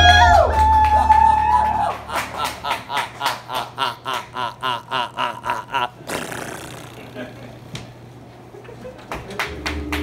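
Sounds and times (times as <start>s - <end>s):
person cackling laugh: 1.8s - 7.6s.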